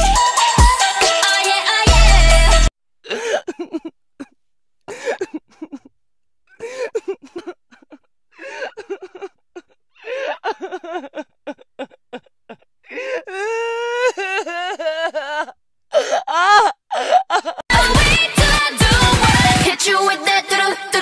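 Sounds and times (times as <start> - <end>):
person sobbing: 3.0 - 5.9, 6.5 - 17.7.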